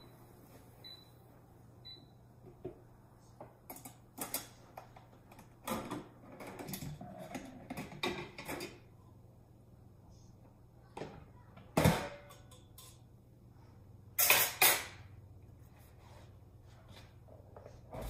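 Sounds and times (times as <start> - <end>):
air fryer beep: 0.0 - 1.2, 1.8 - 2.2.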